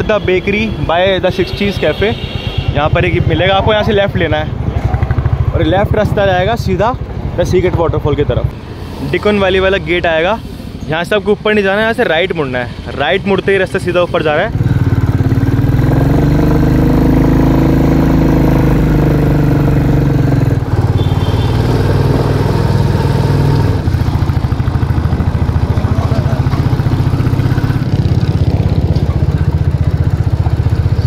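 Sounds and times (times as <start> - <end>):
motorcycle engine thumping: 23.7 - 31.0.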